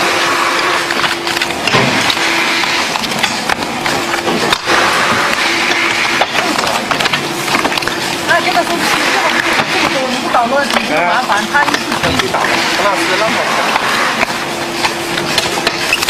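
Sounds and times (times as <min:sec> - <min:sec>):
playing cards clicking and slapping: 0:00.9 - 0:09.7.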